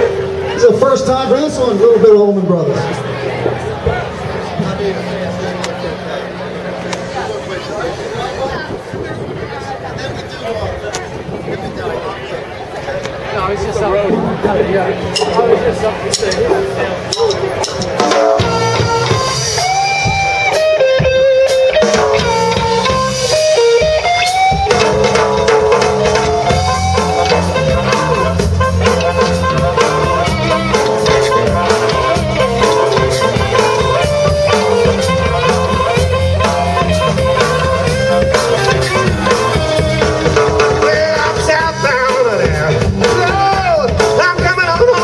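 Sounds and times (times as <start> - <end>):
background music with beat: 15.1 - 45.0.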